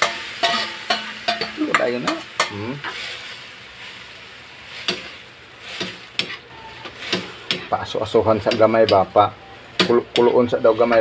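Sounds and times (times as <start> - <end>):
metal spatula scraping wok: 0.0 - 4.0, 4.7 - 9.1, 9.8 - 11.0
beans sizzling in oil: 0.0 - 11.0.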